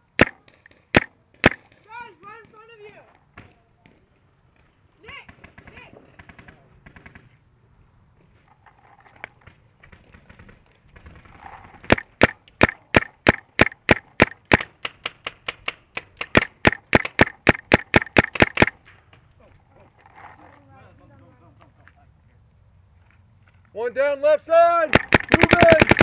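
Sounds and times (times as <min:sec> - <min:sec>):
paintball marker firing rapidly: 0:00.2 - 0:01.8, 0:05.3 - 0:07.3, 0:10.0 - 0:18.8, 0:24.9 - 0:26.0.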